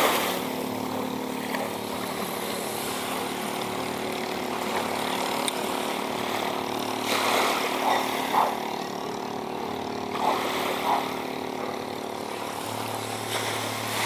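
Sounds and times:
boat engine idling: 0.0s - 14.0s.

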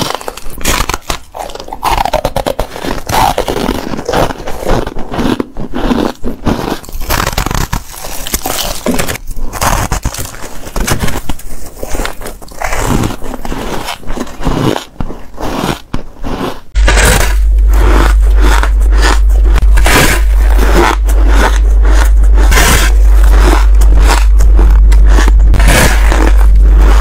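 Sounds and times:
crunching bites into ice: 0.0s - 27.0s
low rumble: 16.7s - 27.0s.

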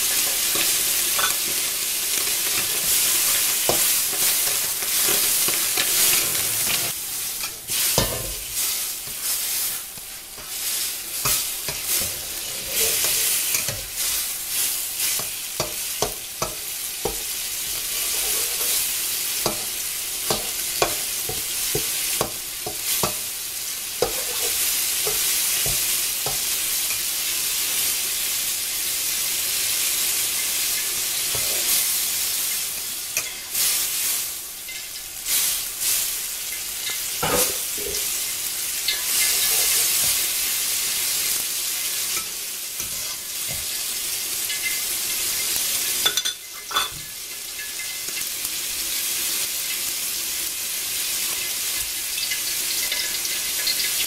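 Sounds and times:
food sizzling in a frying pan: 0.0s - 54.0s
spatula scraping a pan: 0.1s - 23.3s, 23.9s - 27.1s, 31.2s - 32.0s, 38.9s - 40.4s, 42.1s - 44.8s.

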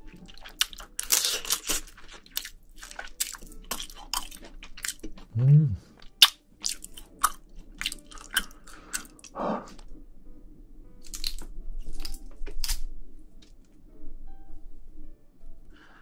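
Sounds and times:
crunchy chewing: 0.1s - 5.3s, 5.9s - 9.8s, 11.0s - 12.9s
tongs squishing saucy food: 0.3s - 5.2s.

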